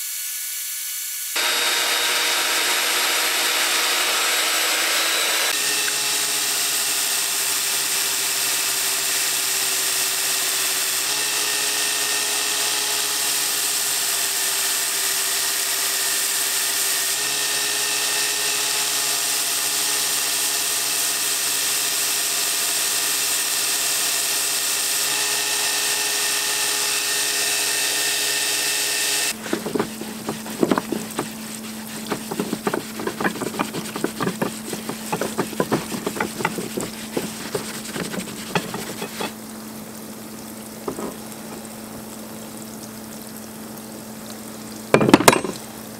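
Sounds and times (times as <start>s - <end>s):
belt grinder sanding: 1.4s - 6.2s, 29.3s - 39.3s
bandsaw cutting wood: 1.4s - 39.4s
blade scrubbed by hand: 29.3s - 39.3s
scraping and splashing: 29.3s - 39.4s, 40.8s - 41.9s
pump humming: 29.3s - 43.0s.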